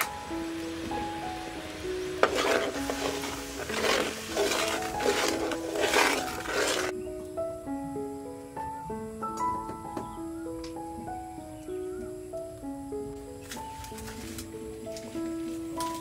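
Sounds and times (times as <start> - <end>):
frying sizzle: 0.0 - 6.9
background music: 0.0 - 16.0
metal ladle scraping wok: 2.1 - 6.9.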